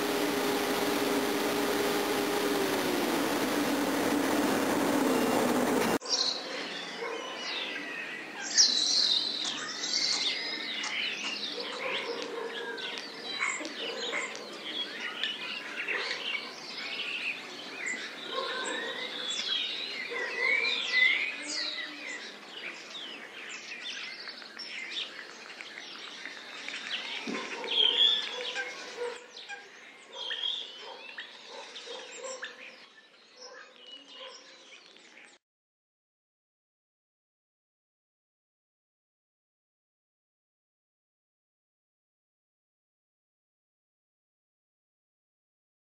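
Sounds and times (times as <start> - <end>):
songbirds singing: 6.0 - 35.4.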